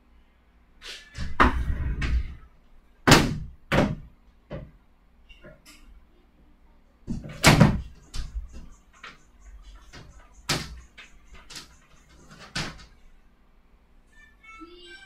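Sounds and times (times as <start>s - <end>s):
faint low hum: 0.0s - 15.0s
sharp knocks and thumps: 7.1s - 12.9s.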